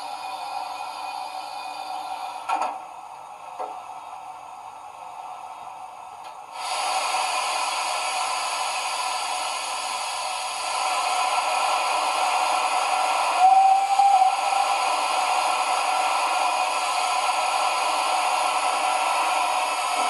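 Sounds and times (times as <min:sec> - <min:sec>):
steam hiss: 0:06.5 - 0:20.0.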